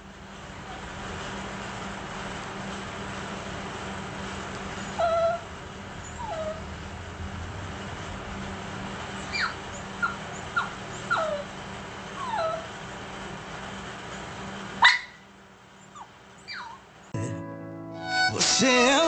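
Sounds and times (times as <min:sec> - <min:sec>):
dog whimpering: 0:04.9 - 0:06.7, 0:09.2 - 0:11.5, 0:12.2 - 0:12.7, 0:16.0 - 0:16.8.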